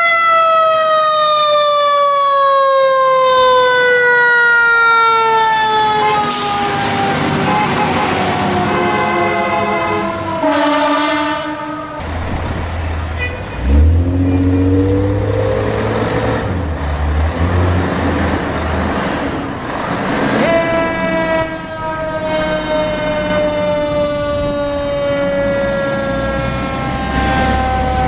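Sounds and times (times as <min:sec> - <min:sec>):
fire truck sirens wailing: 0:00.0 - 0:28.0
diesel engine: 0:03.3 - 0:28.0
air horns: 0:05.9 - 0:12.0.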